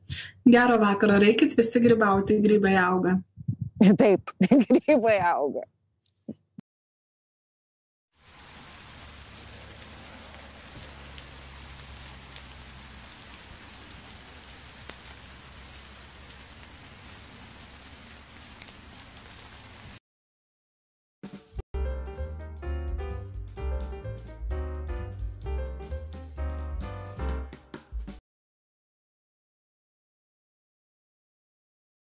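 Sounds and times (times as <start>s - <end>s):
faint ticks: 18.6s - 18.8s.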